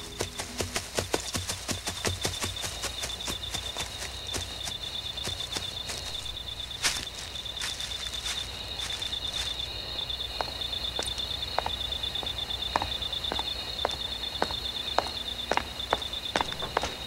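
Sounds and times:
horse hooves knocking: 0.0s - 6.1s, 12.7s - 17.0s
crickets chirping: 0.0s - 17.0s
man's footsteps: 0.0s - 17.0s.

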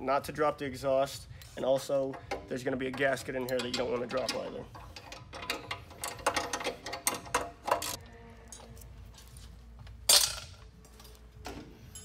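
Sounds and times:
wrench and ratchet clicking on metal: 1.4s - 8.0s.

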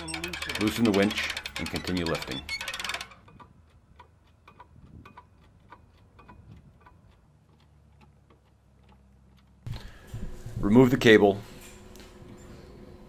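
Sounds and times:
faint light clicking of jacks: 0.3s - 10.0s.

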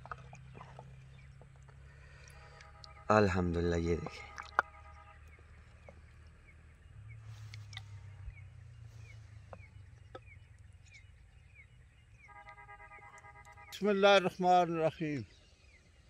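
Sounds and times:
small bird chirping: 4.0s - 13.8s.

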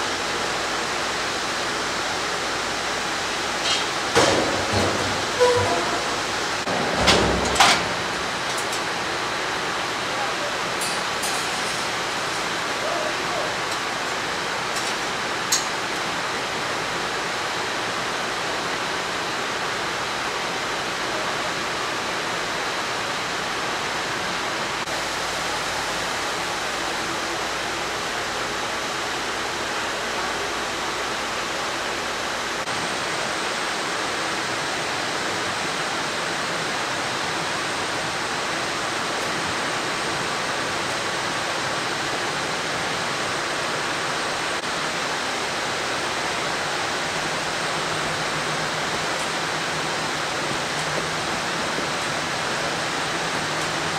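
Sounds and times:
industrial machinery rush: 3.6s - 16.2s.

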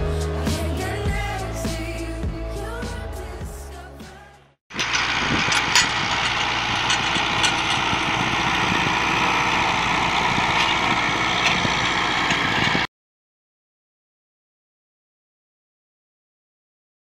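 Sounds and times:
power harrow clatter: 4.7s - 12.9s
tractor diesel engine hum: 4.7s - 12.9s.

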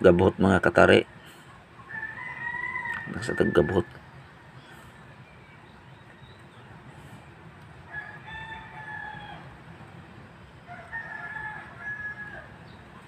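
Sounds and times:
rooster crowing: 1.8s - 3.9s, 7.8s - 9.7s, 10.6s - 12.8s.

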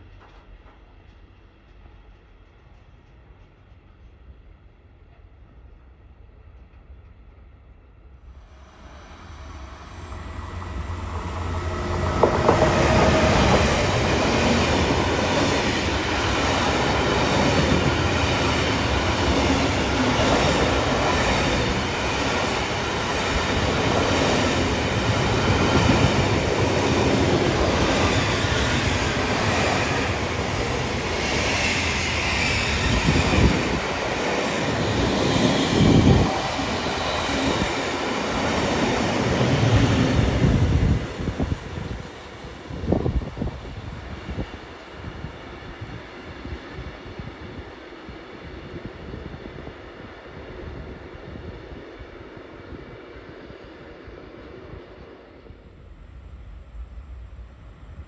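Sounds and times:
freight train rumbling: 0.0s - 58.0s.

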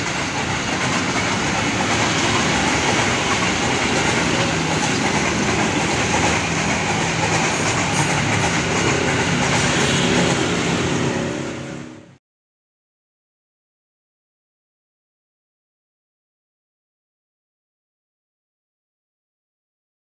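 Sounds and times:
train passing on rails: 0.0s - 12.2s.

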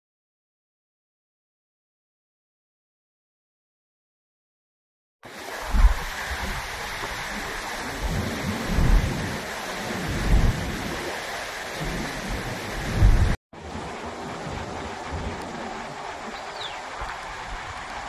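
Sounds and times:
wind and rain rushing: 5.2s - 18.0s
wind buffeting microphone: 5.5s - 18.0s.

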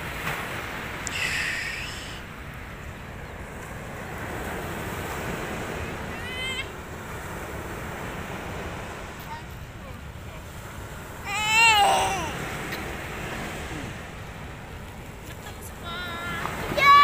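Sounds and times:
sea surf: 0.0s - 17.0s
child calling: 1.1s - 2.2s, 6.1s - 6.8s, 11.2s - 12.5s, 15.9s - 17.0s.

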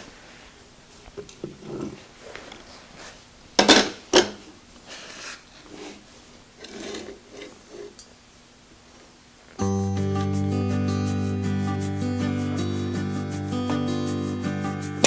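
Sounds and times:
motor scraping on steel plate: 6.6s - 8.0s.

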